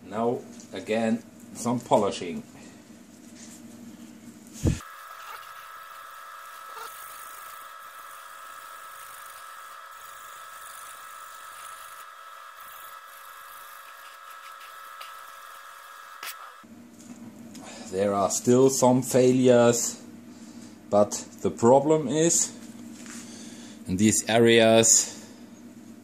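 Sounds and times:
small electric motor whining: 4.6 - 16.7.

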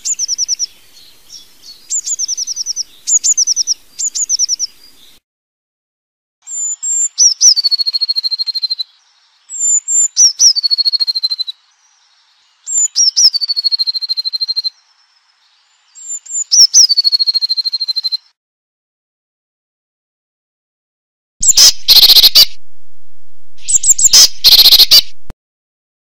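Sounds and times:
blue tit singing: 0.0 - 5.2, 6.5 - 14.9, 15.5 - 18.3, 21.4 - 22.5, 23.6 - 25.0.

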